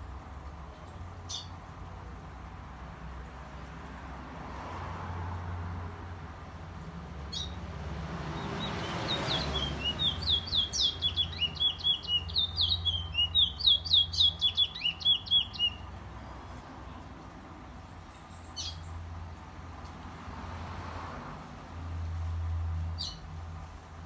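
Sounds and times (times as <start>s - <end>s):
songbird singing sharp high notes: 8.4s - 15.9s.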